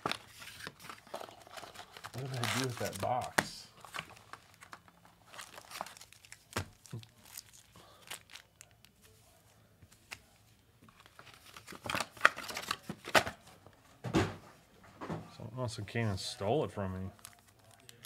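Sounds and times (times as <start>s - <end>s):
plastic wrapping crinkling: 0.0s - 9.2s, 17.1s - 18.0s.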